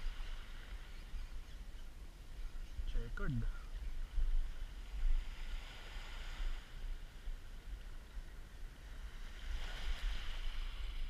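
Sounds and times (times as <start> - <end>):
small sea waves washing: 4.4 - 11.0.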